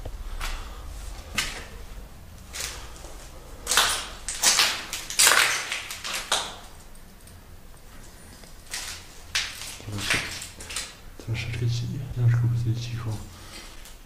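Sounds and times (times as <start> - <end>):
footsteps crunching on gritty floor: 7.9 - 11.4.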